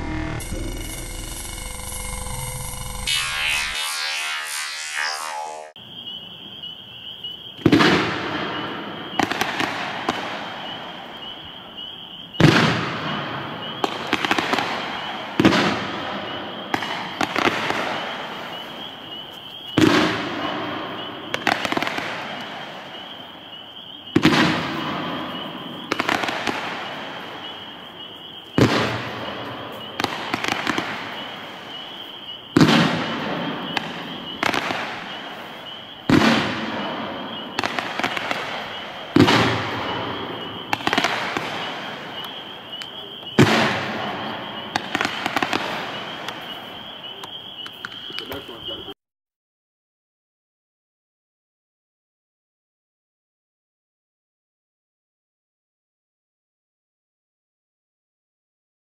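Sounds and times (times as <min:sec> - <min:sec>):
fireworks crackle: 0:00.4 - 0:05.8, 0:07.6 - 0:11.4, 0:12.4 - 0:23.5, 0:24.1 - 0:48.9
fireworks sharp bangs: 0:07.5 - 0:48.9.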